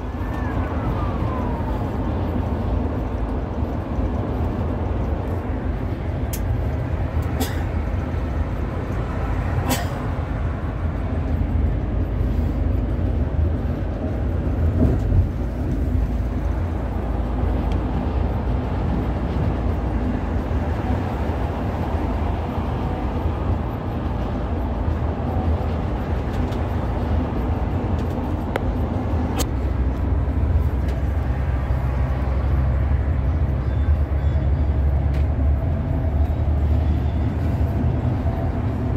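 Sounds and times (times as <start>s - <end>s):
vehicle engine and tyre rumble: 0.0s - 38.9s.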